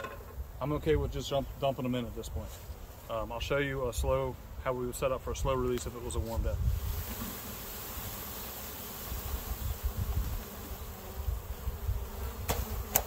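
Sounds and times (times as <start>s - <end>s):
honeybees buzzing: 5.7s - 13.0s.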